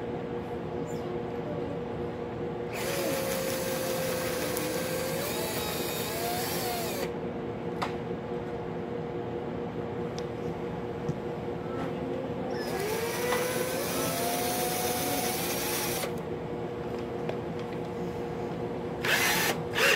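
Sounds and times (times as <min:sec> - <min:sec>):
cordless drill motor hum: 0:02.7 - 0:07.2, 0:12.6 - 0:16.2, 0:19.0 - 0:19.9
pencil sharpener shaving hiss: 0:02.8 - 0:07.1.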